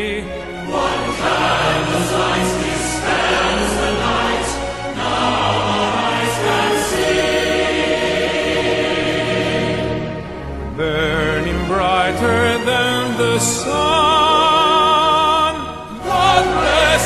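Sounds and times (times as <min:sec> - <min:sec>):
musical backing: 0:00.0 - 0:17.0
choir singing long-held notes: 0:00.3 - 0:17.0.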